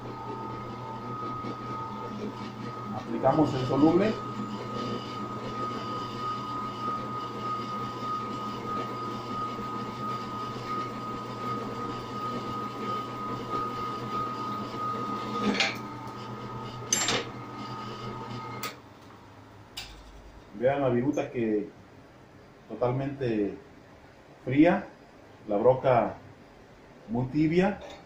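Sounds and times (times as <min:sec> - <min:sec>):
drill press motor whining: 0:00.0 - 0:18.8.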